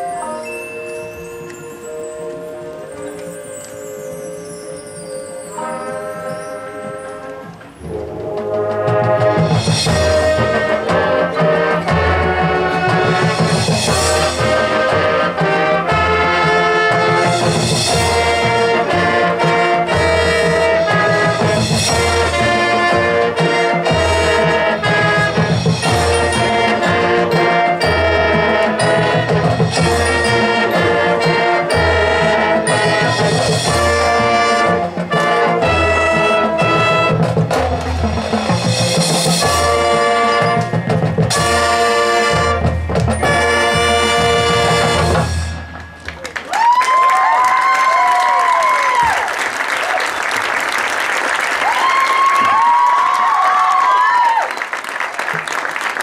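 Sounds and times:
brass band playing chords: 0.0 - 46.4.

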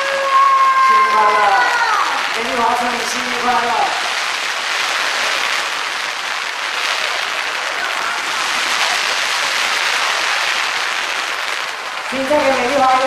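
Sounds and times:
crowd applauding: 3.9 - 13.0.

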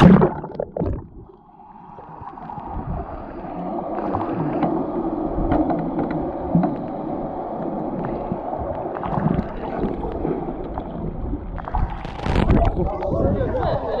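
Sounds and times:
underwater water rush: 0.0 - 14.0
small underwater clicks and pops: 11.6 - 13.1.

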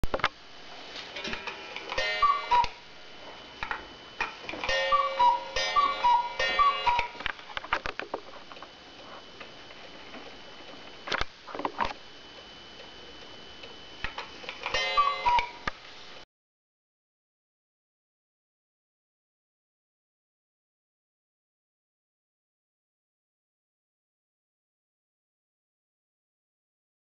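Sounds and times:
cuckoo clock call: 1.9 - 2.8, 4.6 - 7.3, 14.6 - 15.7.

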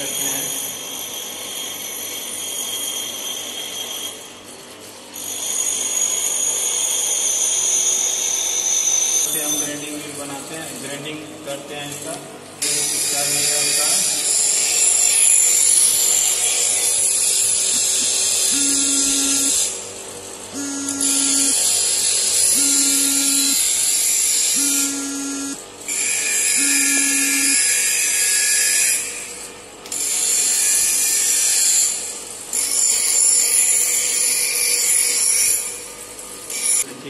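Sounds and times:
bench grinder grinding steel: 12.6 - 29.3
short tone beeps: 18.5 - 19.7, 20.6 - 21.6, 22.6 - 23.6, 24.6 - 25.6, 26.6 - 27.6.

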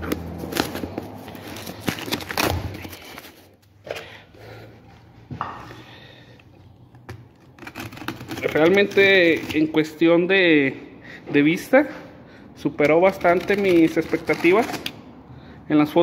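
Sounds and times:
cardboard and styrofoam rustling: 0.0 - 3.6.

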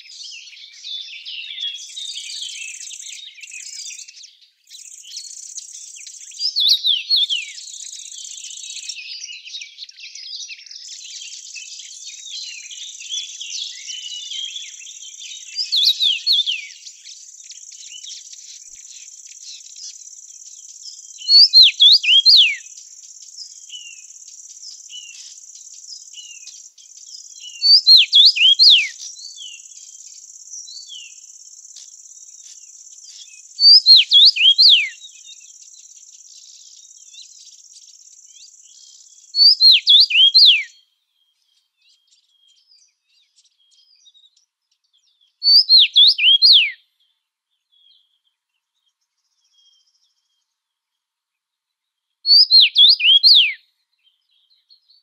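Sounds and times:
songbird singing: 0.0 - 55.0
high insect hiss: 16.4 - 39.5.

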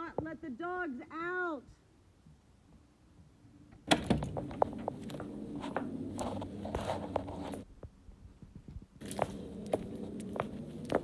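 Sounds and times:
clothing rustle and phone clicks: 4.1 - 7.7
footsteps on brick path: 4.2 - 11.0.

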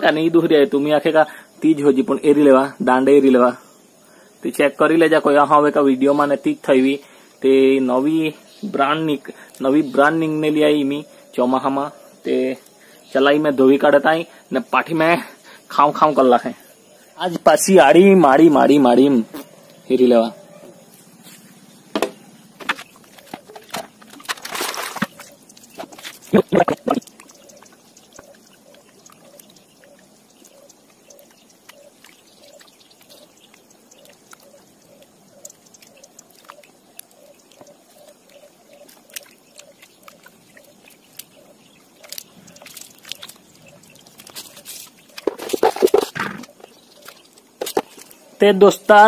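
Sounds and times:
water splashing and sloshing: 22.0 - 48.3
faint drips and clicks: 22.8 - 48.2.

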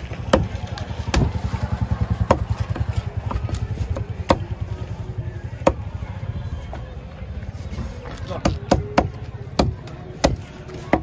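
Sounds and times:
small engine idling: 0.0 - 6.8
cleaver chopping on wooden block: 0.2 - 1.4, 8.4 - 11.0.

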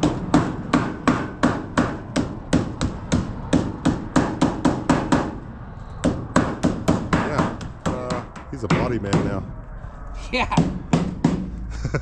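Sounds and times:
hammer striking aluminum sheet: 0.0 - 5.4.

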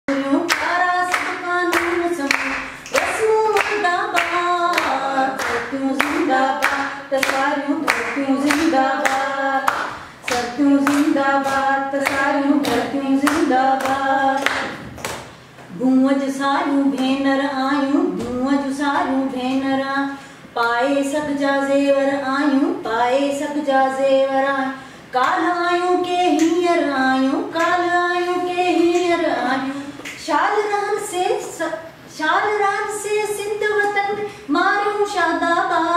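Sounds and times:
woman singing unaccompanied: 0.1 - 14.8, 15.7 - 35.9
people clapping along: 0.1 - 15.8, 25.2 - 26.7, 27.5 - 29.2.

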